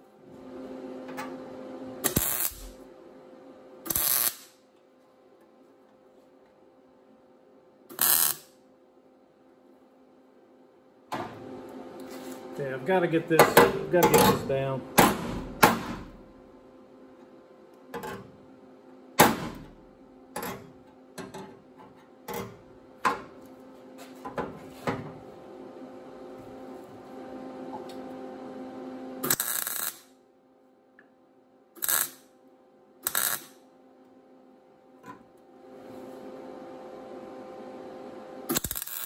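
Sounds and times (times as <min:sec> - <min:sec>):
steady hum: 0:00.0 - 0:39.0
welding crackling: 0:02.0 - 0:02.8, 0:03.9 - 0:04.6, 0:07.9 - 0:08.5, 0:29.2 - 0:30.1, 0:31.8 - 0:32.2, 0:33.0 - 0:33.6, 0:38.5 - 0:39.0.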